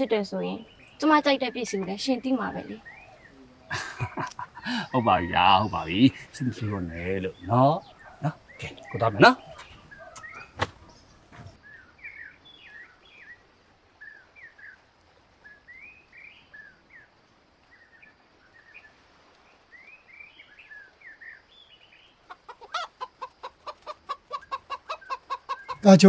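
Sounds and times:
faint bird chirps: 0:00.0 - 0:26.0
hen clucking: 0:01.6 - 0:11.6, 0:22.2 - 0:26.0.

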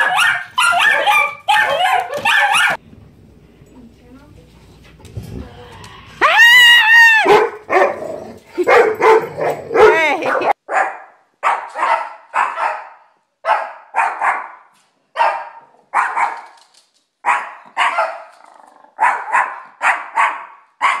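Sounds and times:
small dog barking: 0:00.0 - 0:02.8, 0:07.2 - 0:16.5, 0:17.2 - 0:18.3, 0:19.0 - 0:21.0.

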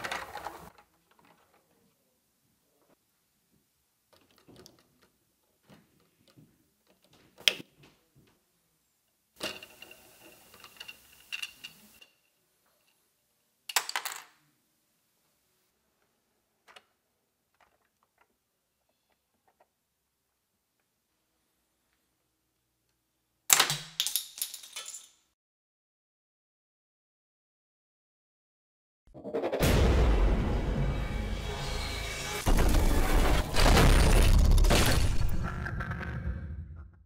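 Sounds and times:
plastic parts clattering: 0:00.0 - 0:01.9, 0:04.1 - 0:07.2, 0:09.4 - 0:13.0, 0:23.5 - 0:25.2
plastic parts clicking and rattling: 0:00.0 - 0:01.9, 0:04.1 - 0:07.6, 0:09.4 - 0:12.2, 0:17.5 - 0:19.7.

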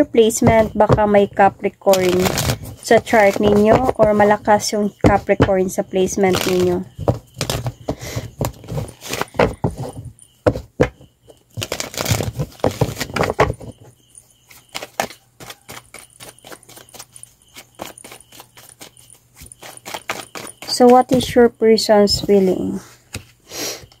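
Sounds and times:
cards being shuffled: 0:01.9 - 0:04.3, 0:06.2 - 0:06.8, 0:14.5 - 0:21.3.

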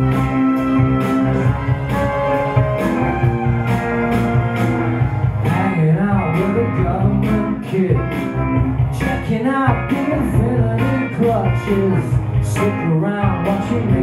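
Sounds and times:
electric guitar: 0:00.0 - 0:14.0
steady beat: 0:00.0 - 0:14.0
man singing into microphone: 0:05.5 - 0:08.3, 0:08.9 - 0:14.0.

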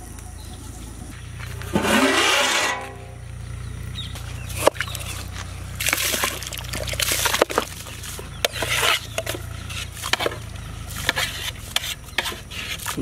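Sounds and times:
rice splashing into water: 0:05.7 - 0:08.7.

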